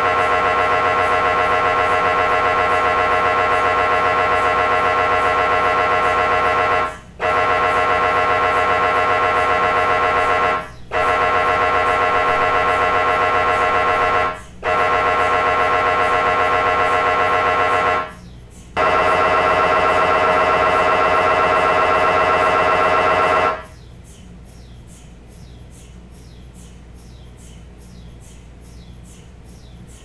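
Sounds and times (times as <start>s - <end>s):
mri scanner pulsing buzz: 0.0s - 23.9s.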